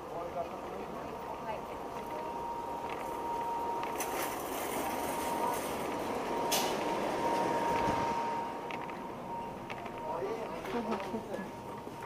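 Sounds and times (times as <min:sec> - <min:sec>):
cart wheels rolling on pavement: 0:00.1 - 0:06.4.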